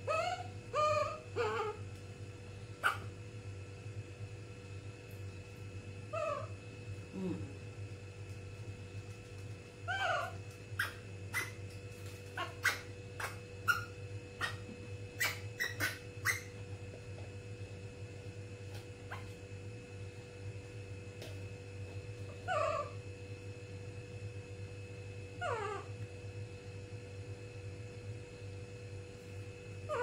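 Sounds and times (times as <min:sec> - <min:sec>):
baby monkey crying: 0:00.0 - 0:01.8, 0:06.1 - 0:06.5, 0:09.9 - 0:11.6, 0:12.4 - 0:14.6, 0:15.2 - 0:16.5, 0:22.4 - 0:23.0
steady low hum: 0:00.0 - 0:30.0.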